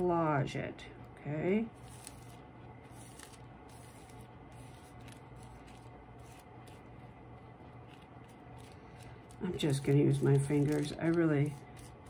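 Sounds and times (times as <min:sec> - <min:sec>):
steady low hum: 0:00.0 - 0:12.0
tissue paper rustling: 0:01.8 - 0:06.9, 0:07.8 - 0:12.0.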